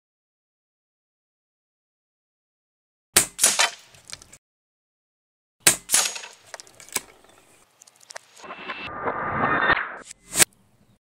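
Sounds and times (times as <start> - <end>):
pellet hitting steel target: 3.2 - 4.1, 5.6 - 7.0.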